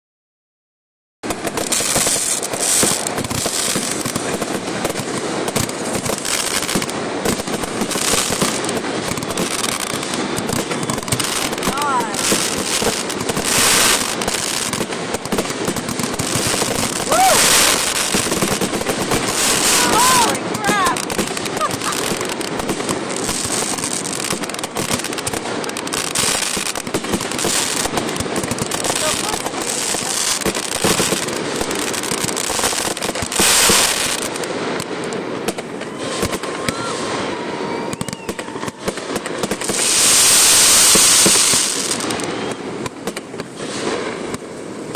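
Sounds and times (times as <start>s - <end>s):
fireworks bursting and crackling: 1.2s - 44.9s.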